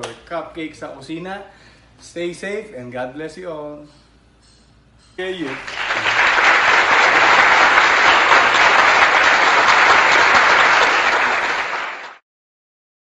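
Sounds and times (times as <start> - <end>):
applause: 5.4 - 12.2.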